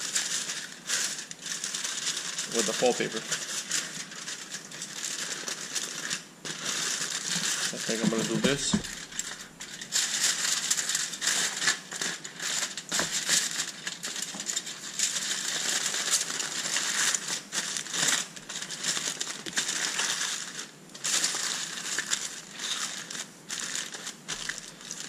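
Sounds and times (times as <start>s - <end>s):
aluminium foil crinkling: 0.0s - 25.0s.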